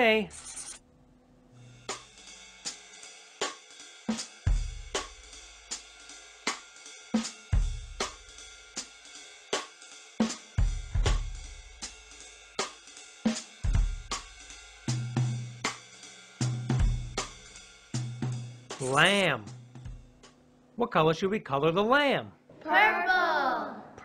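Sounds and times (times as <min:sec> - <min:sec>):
slow drum-kit beat: 0:01.6 - 0:20.4.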